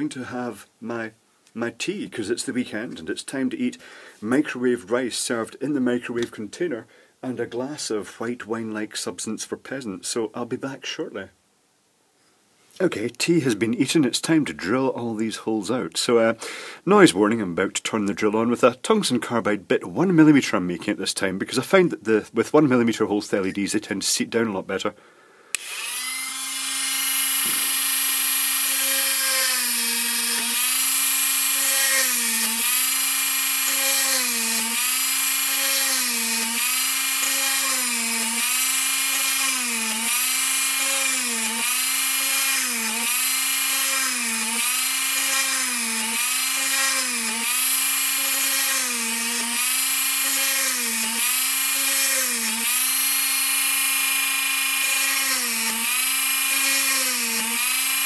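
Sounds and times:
mini hand drill whining: 0:25.5 - 0:58.0.

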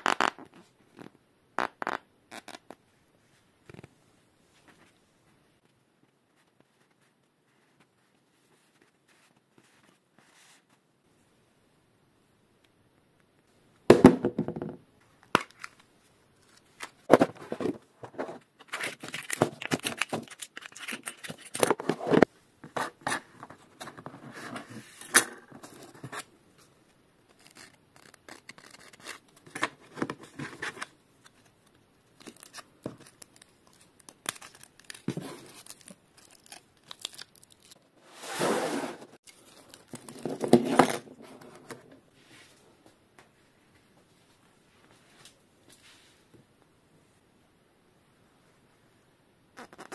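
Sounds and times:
packaging tearing and crinkling: 0:18.7 - 0:21.8, 0:32.2 - 0:37.8.

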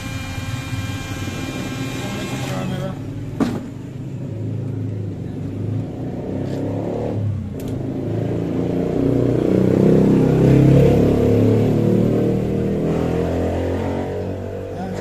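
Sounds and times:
engine running: 0:00.0 - 0:15.0.

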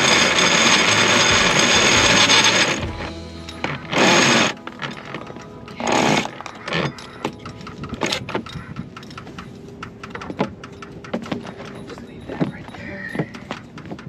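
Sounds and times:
winch ratcheting clicks: 0:00.0 - 0:14.0
line and winch knocks: 0:06.0 - 0:14.0.

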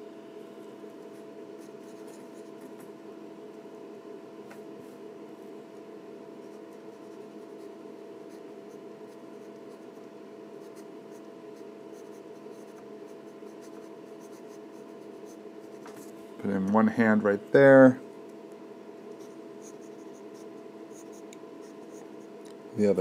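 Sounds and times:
low background hum: 0:00.0 - 0:23.0
pen scratching on paper: 0:10.6 - 0:16.0, 0:19.1 - 0:22.1.

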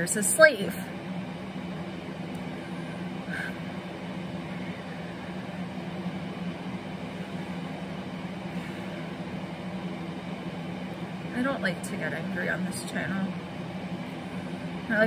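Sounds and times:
low mechanical room hum: 0:00.0 - 0:15.0.

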